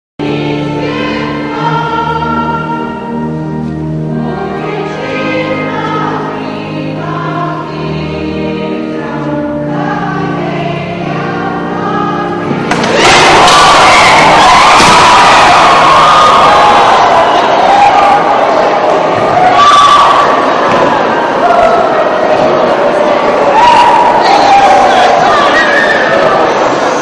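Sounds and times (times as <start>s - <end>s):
choir singing a hymn: 0.2s - 27.0s.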